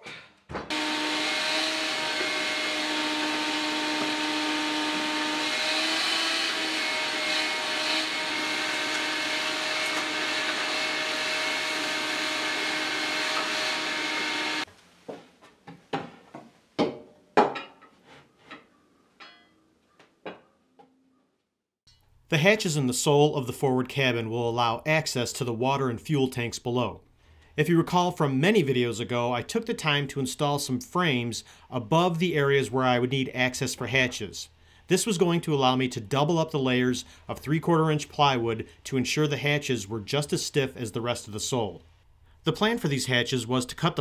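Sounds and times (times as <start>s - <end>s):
shop vacuum humming: 0.7s - 14.7s.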